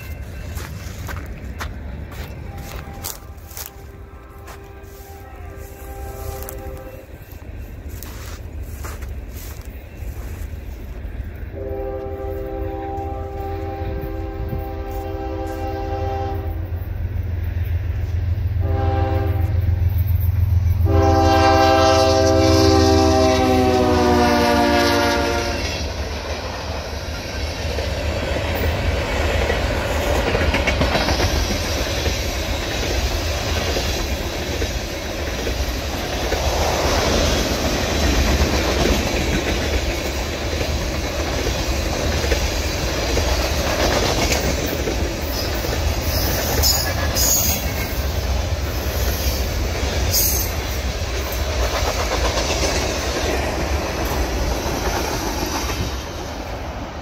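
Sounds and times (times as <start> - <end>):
freight train rolling past: 0.0 - 57.0
wheels clacking over rail joints: 27.4 - 56.1.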